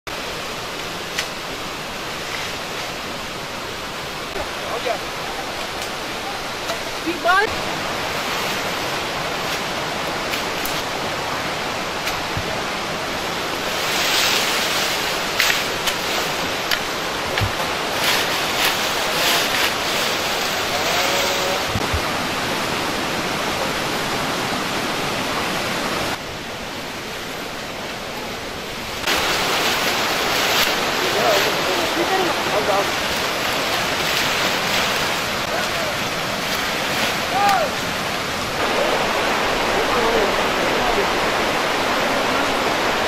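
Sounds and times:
leafy branches rustling: 0:00.1 - 0:43.0
rushing background noise: 0:00.1 - 0:43.0
branches snapping: 0:09.4 - 0:10.9, 0:12.0 - 0:12.5, 0:14.2 - 0:21.0, 0:29.0 - 0:37.8.

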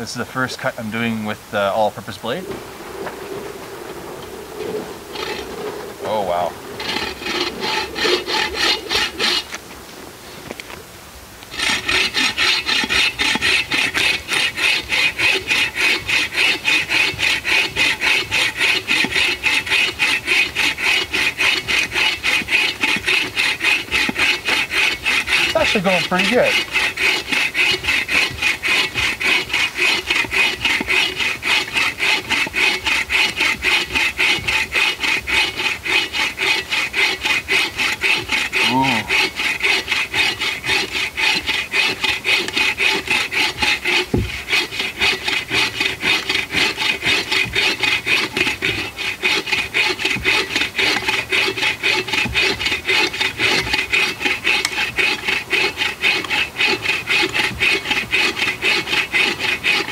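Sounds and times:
saw rasping through log: 0:00.0 - 0:09.6, 0:11.4 - 0:59.9
knock: 0:44.1 - 0:44.3.

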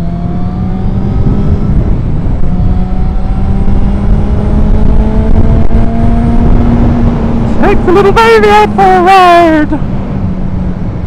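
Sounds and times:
motorcycle engine accelerating: 0:00.0 - 0:11.0
wind rumble on microphone: 0:00.0 - 0:11.0.

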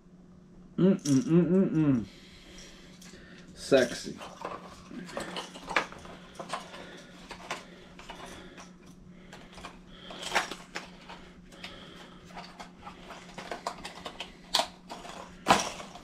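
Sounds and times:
faint low hum: 0:00.0 - 0:16.0
plastic and card packaging rustling: 0:03.7 - 0:16.0.

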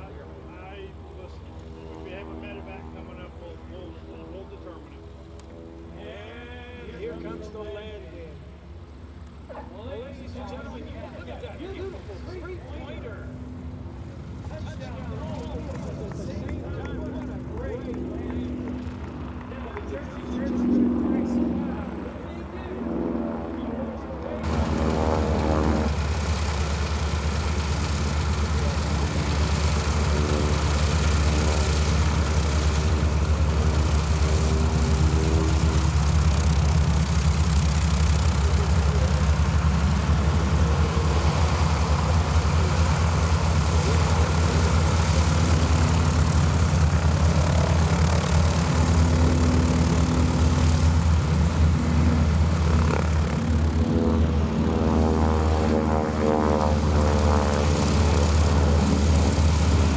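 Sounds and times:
propeller engines droning: 0:00.0 - 0:59.9.

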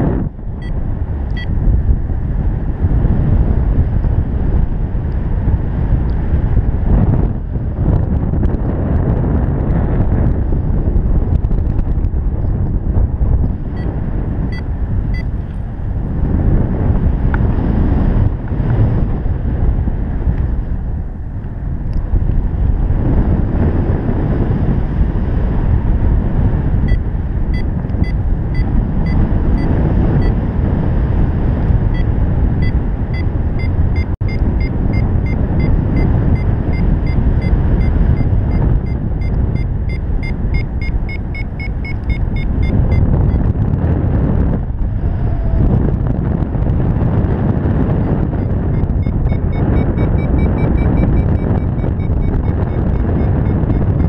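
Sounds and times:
wind buffeting microphone: 0:00.0 - 0:54.0
variometer short high beeps: 0:00.6 - 0:01.6, 0:14.5 - 0:15.3, 0:26.9 - 0:30.4, 0:31.9 - 0:43.5, 0:48.0 - 0:54.0.

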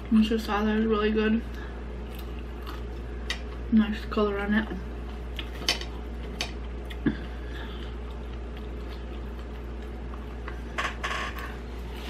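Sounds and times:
chewing clicks and smacks: 0:08.0 - 0:10.6.

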